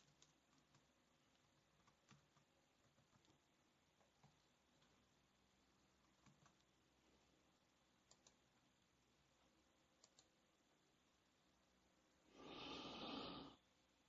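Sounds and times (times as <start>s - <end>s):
computer mouse clicks: 0.0s - 5.0s, 6.0s - 6.7s, 8.0s - 8.5s, 10.0s - 10.4s.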